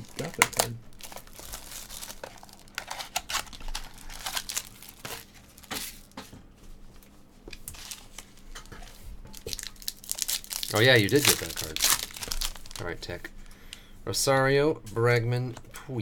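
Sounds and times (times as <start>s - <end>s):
foil wrappers crinkling and tearing: 0.0s - 6.2s, 7.5s - 13.2s.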